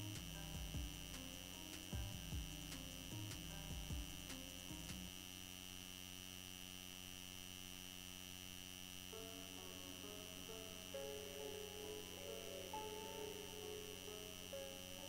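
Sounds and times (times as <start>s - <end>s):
faint background music: 0.0s - 5.6s, 8.8s - 15.0s
electrical hum: 0.0s - 15.0s
thin high whine: 0.0s - 15.0s.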